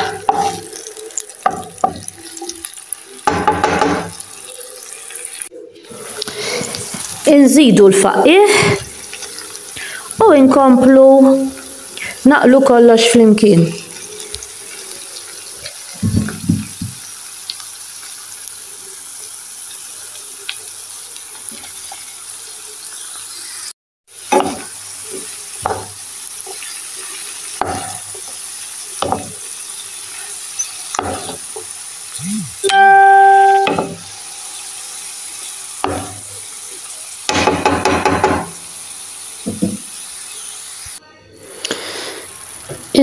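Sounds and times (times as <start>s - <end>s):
spoon scraping a pan: 0.0s - 0.8s
food sizzling in a pan: 0.0s - 43.0s
loud steady tone: 32.2s - 34.3s.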